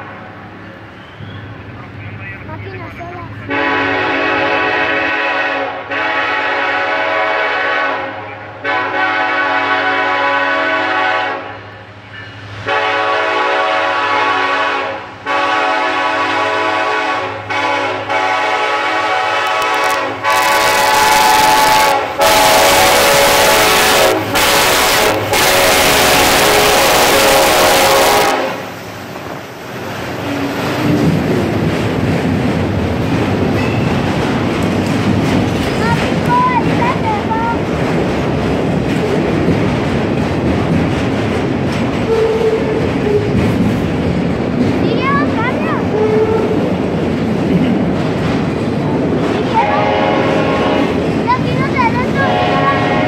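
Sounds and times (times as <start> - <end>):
diesel locomotive engine drone: 0.0 - 53.0
locomotive air horn blasts: 3.5 - 11.7, 12.6 - 28.7, 49.6 - 51.0, 52.2 - 53.0
freight cars rumbling past: 11.0 - 53.0.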